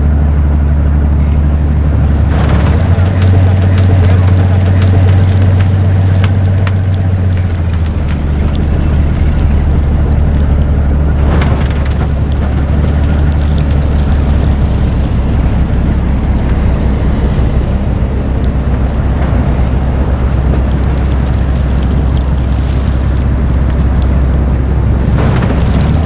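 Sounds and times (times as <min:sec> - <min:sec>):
snow blower droning: 0:00.0 - 0:26.0
short rush of noise: 0:13.2 - 0:23.4.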